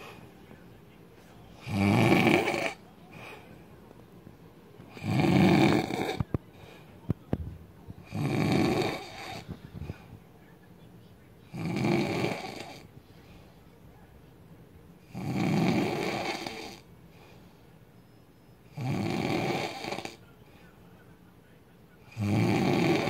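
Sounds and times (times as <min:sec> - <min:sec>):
man snoring loudly: 0:01.6 - 0:02.8, 0:04.9 - 0:06.2, 0:08.1 - 0:09.4, 0:11.5 - 0:12.8, 0:15.1 - 0:16.8, 0:18.7 - 0:20.2, 0:22.1 - 0:23.0.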